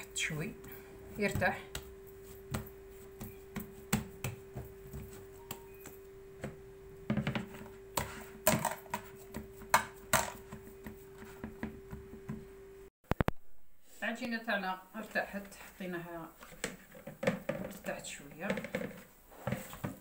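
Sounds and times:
steady hum: 0:00.0 - 0:08.5
hands patting dough: 0:01.1 - 0:06.5.

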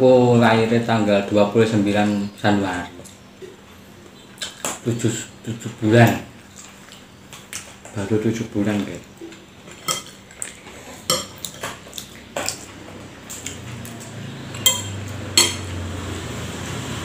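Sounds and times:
metal spoon clinking on plate: 0:14.6 - 0:15.8.

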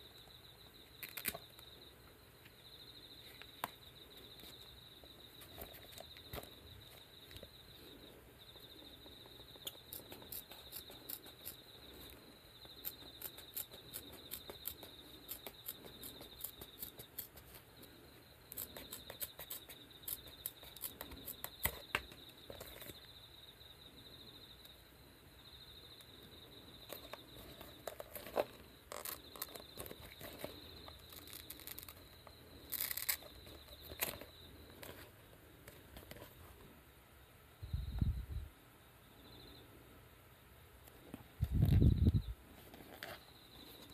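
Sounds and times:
hook-and-loop fastener crackling: 0:26.9 - 0:35.0.

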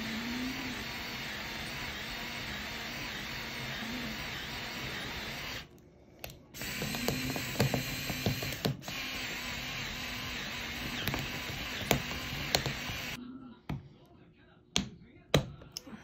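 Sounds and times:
electric drill drilling metal: 0:00.0 - 0:05.7, 0:06.6 - 0:13.2.

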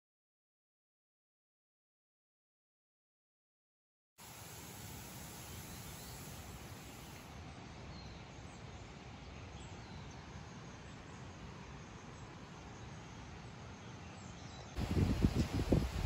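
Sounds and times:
low background hiss: 0:04.2 - 0:16.0
faint bird chirps: 0:04.3 - 0:16.0.

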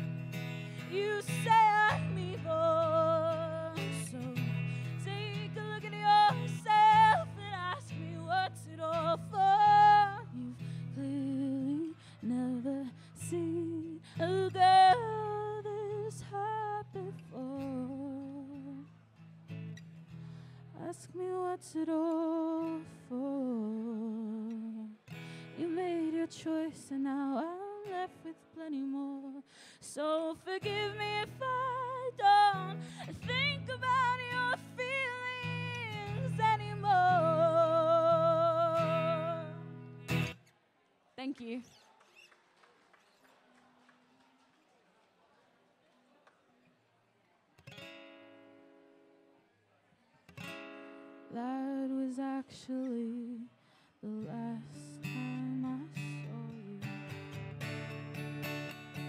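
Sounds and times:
strummed acoustic guitar: 0:00.0 - 0:21.2, 0:24.5 - 0:29.0, 0:29.9 - 0:40.5, 0:47.6 - 0:49.3, 0:50.3 - 0:51.9, 0:54.2 - 0:59.0
woman singing: 0:00.7 - 0:18.9, 0:20.7 - 0:39.9, 0:51.3 - 0:57.2.

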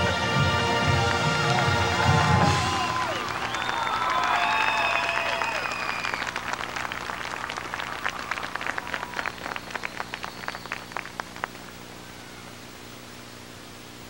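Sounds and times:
crowd applause: 0:00.0 - 0:12.3
steady hiss: 0:05.8 - 0:14.0.

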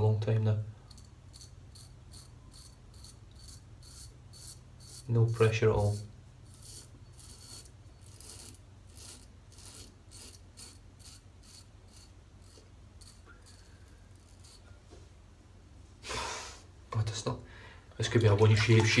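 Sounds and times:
razor scraping stubble: 0:00.9 - 0:14.8.

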